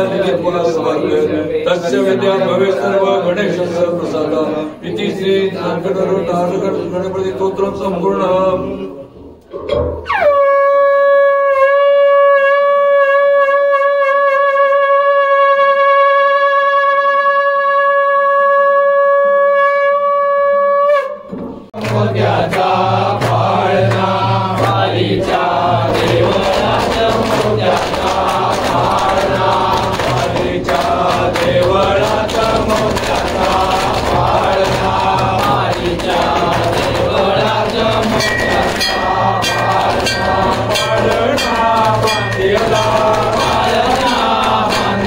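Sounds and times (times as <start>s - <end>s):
devotional music with chanting: 0.0s - 9.9s, 21.6s - 45.0s
conch shell blown: 10.0s - 21.7s.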